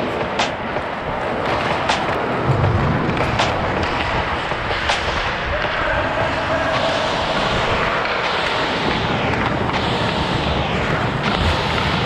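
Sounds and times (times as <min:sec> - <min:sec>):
skates scraping ice: 0:00.0 - 0:12.0
sharp click: 0:00.4 - 0:00.6.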